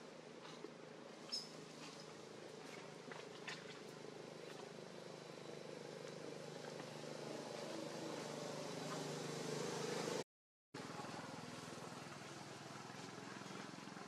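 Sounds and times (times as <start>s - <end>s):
motor pulsing hum: 0.0s - 10.2s.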